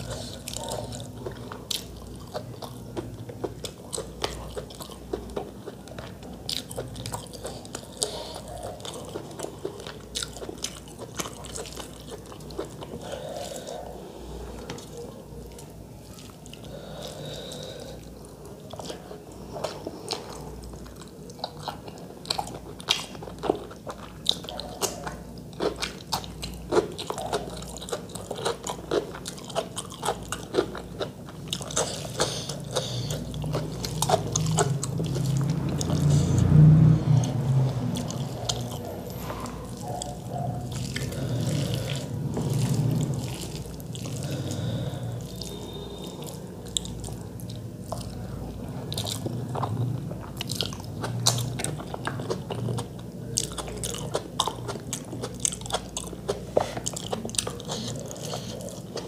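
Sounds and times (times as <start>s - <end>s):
chewing and wet mouth clicks: 19.6s - 36.4s, 37.2s - 48.2s.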